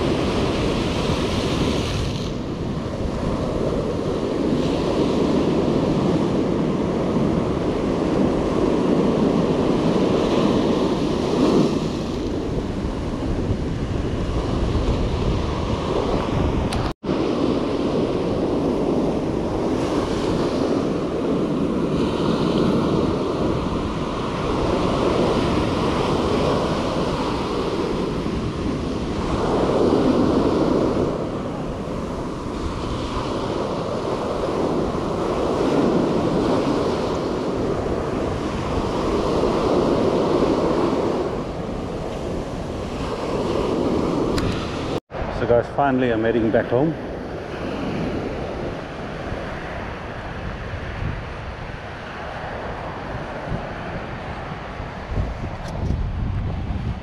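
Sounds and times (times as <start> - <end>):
surf breaking on beach: 0.0 - 57.0
wind on microphone: 0.0 - 57.0.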